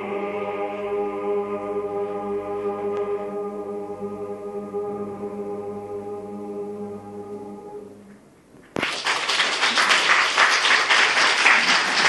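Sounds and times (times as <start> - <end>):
male choir singing a cappella: 0.0 - 7.9
crowd applause: 8.8 - 12.0.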